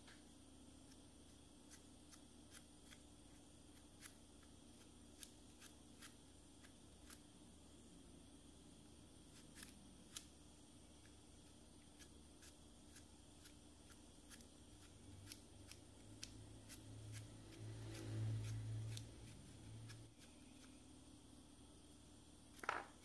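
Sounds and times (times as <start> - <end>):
knife peeling apple: 0.8 - 7.4, 9.2 - 20.9.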